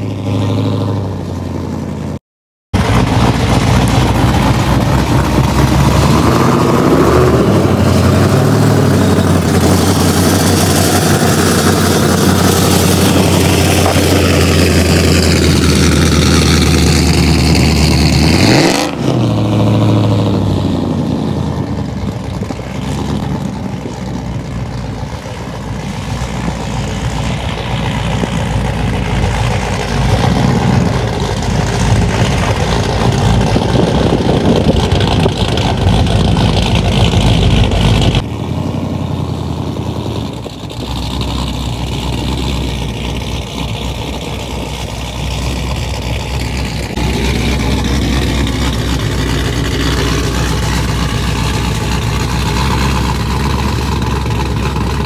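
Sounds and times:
loud engine exhaust rumble: 0.0s - 55.0s.

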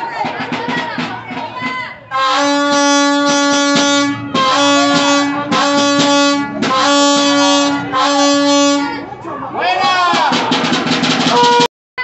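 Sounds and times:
faint voices: 0.0s - 11.7s
horn blasts: 2.1s - 9.1s, 11.3s - 11.7s.

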